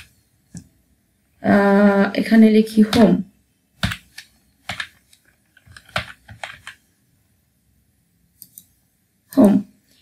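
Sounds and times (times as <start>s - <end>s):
computer keyboard keys clacking: 3.8s - 6.8s.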